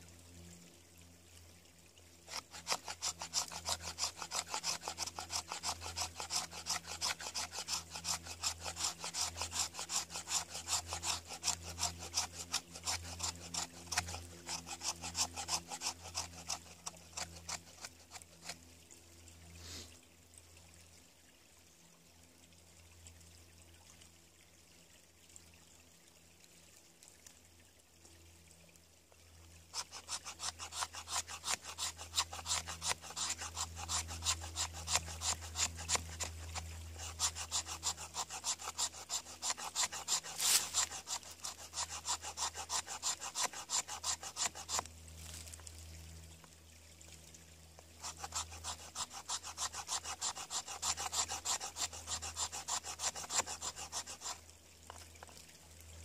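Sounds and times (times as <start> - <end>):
knife scraping wood: 2.3 - 18.6, 29.8 - 45.6, 48.0 - 55.3.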